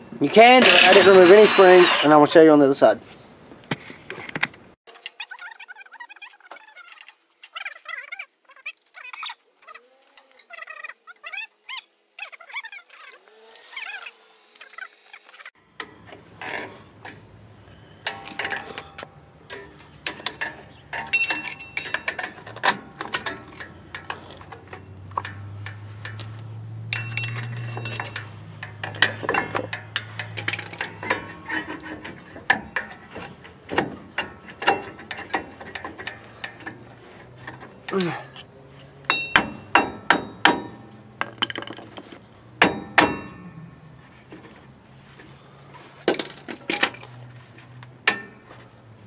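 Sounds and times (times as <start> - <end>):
metallic clicks and clinks: 18.0 - 31.7.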